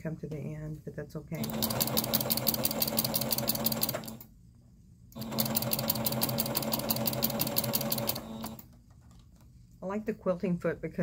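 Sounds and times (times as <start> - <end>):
sewing machine stitching: 1.4 - 4.3, 5.2 - 8.7.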